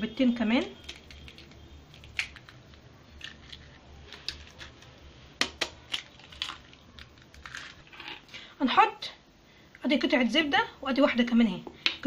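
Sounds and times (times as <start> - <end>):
eggshell crackling: 0.8 - 8.3.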